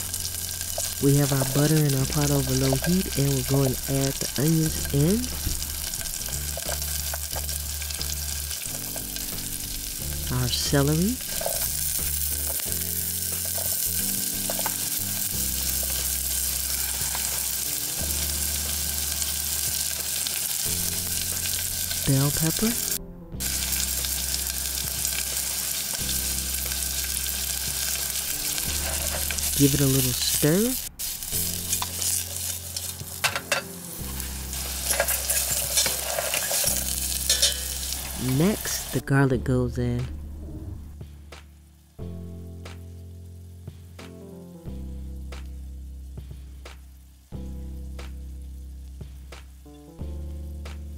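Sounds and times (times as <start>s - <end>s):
vegetables sizzling in butter: 0.0s - 39.1s
metal spoon scraping a pot: 11.2s - 11.9s, 13.4s - 13.9s, 16.6s - 17.6s, 31.7s - 38.3s.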